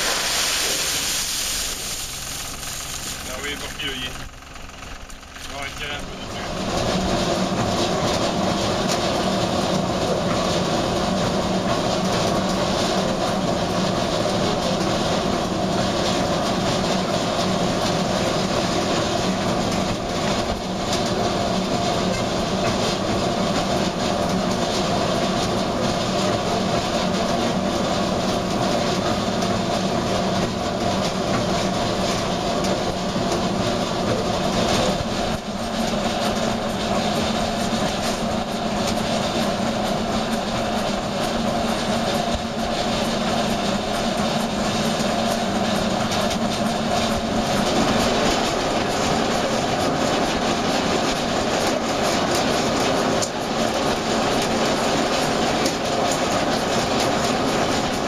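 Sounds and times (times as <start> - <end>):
screw auger running: 0.0 - 10.4.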